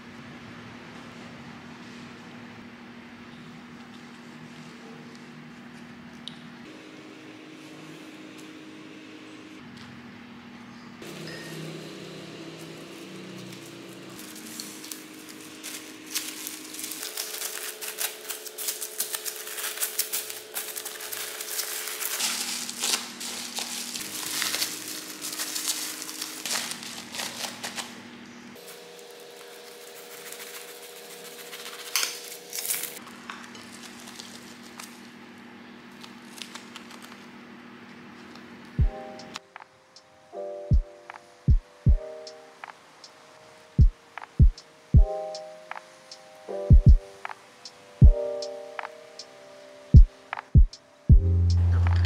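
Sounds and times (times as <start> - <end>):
soft background music: 11.0 - 27.9, 38.8 - 52.0
plastic wrap crinkling: 13.4 - 35.2, 35.9 - 37.4.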